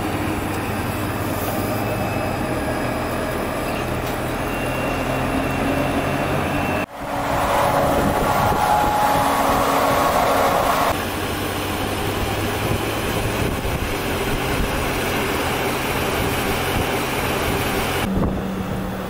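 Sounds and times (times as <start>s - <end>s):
truck low hum: 0.0s - 19.0s
tyre and road noise: 0.0s - 19.0s
high whine: 5.5s - 11.0s.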